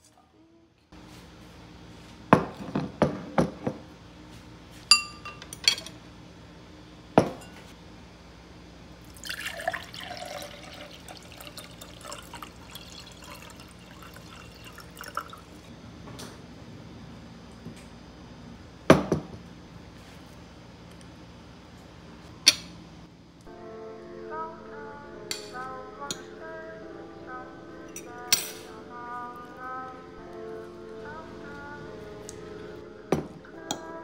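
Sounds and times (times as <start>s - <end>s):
dishes knocking on desk: 2.4s - 3.8s, 7.2s - 7.4s, 33.1s - 33.4s
glass clinks: 4.9s - 5.9s
water pouring into glass: 9.1s - 15.7s.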